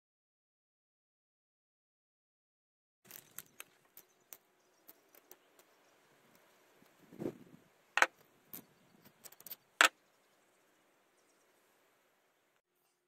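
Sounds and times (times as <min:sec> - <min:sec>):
small metal parts clicking: 0:03.1 - 0:05.7, 0:08.0 - 0:09.9.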